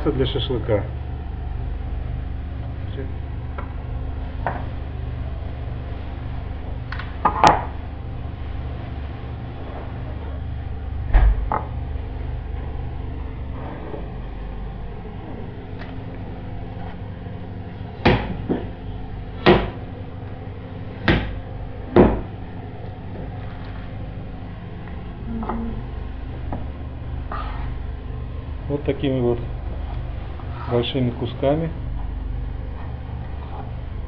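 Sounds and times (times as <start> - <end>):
steady low hum: 0.0 - 34.0
sharp knocks: 18.0 - 18.7, 19.4 - 19.8, 21.0 - 22.3.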